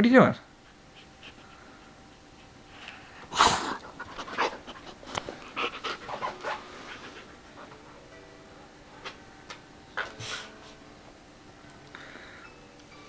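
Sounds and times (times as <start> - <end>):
dog panting: 0.6 - 8.2.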